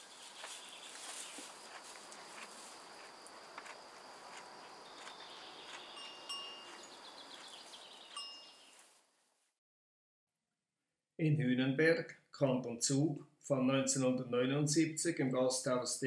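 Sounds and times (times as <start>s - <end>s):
insects chirring: 0.0s - 8.8s
high chirping notes: 5.8s - 7.4s, 8.0s - 8.7s.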